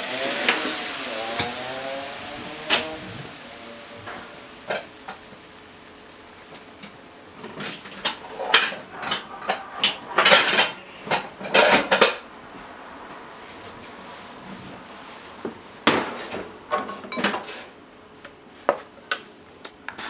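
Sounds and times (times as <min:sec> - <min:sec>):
spatula scraping frying pan: 0:07.4 - 0:12.2.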